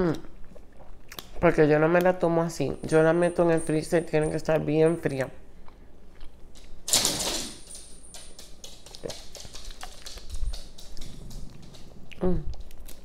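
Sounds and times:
lip smacks and tongue clicks: 0.1s - 2.2s, 8.7s - 13.0s.

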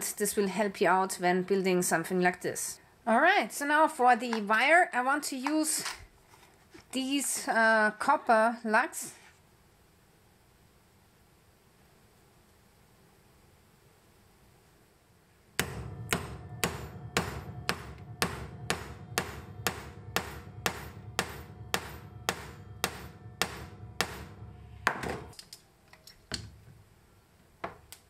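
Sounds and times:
hammer striking crimper: 15.6s - 25.4s.

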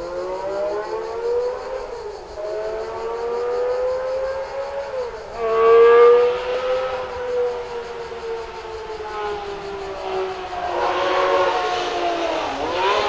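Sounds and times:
racing car engine revving: 5.4s - 13.0s.

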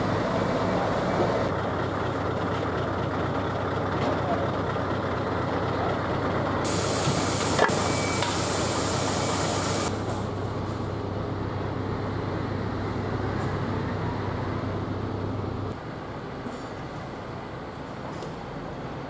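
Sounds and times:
diesel trucks humming: 0.0s - 19.0s
air release hiss: 6.7s - 9.9s.

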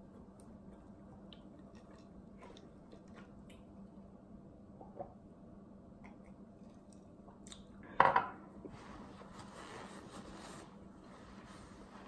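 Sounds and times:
paper towel rustling: 8.7s - 12.0s.

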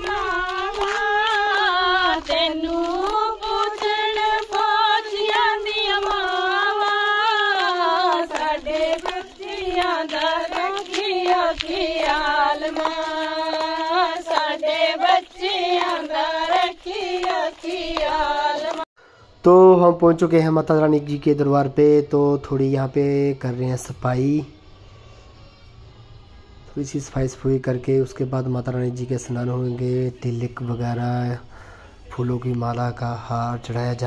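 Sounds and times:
sharp rhythmic taps: 0.0s - 18.9s
woman singing in high voice: 0.0s - 18.9s.

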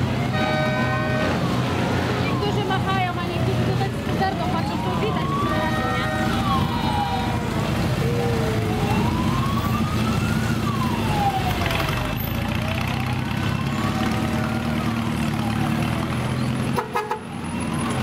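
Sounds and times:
motorcycle engines running: 0.0s - 18.0s
siren wailing: 4.2s - 16.2s.

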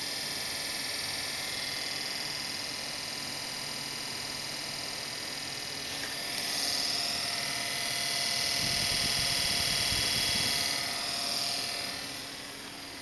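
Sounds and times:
computer cooling fans whooshing: 5.6s - 13.0s.

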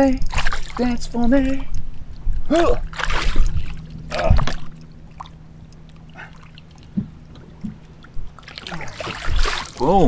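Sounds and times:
faint steady hum: 0.0s - 10.0s
fish splashing at water surface: 2.9s - 5.4s, 8.4s - 9.9s.

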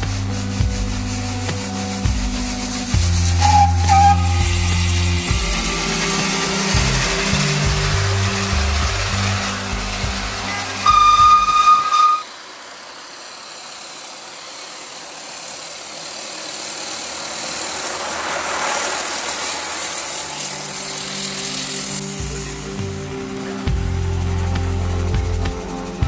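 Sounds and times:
hissing rush of steam vehicles: 0.0s - 26.0s
low steady engine hum: 0.0s - 26.0s
steam whistle blast: 2.8s - 8.0s, 10.4s - 12.4s.

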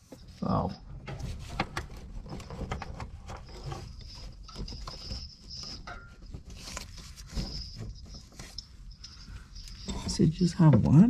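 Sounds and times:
gloved hand rubbing rubber hose: 1.2s - 10.3s.

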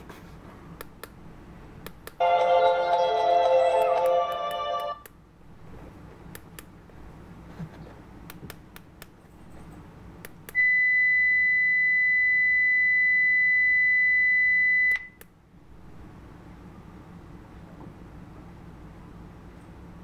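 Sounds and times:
meter keys clicking: 3.7s - 5.2s.

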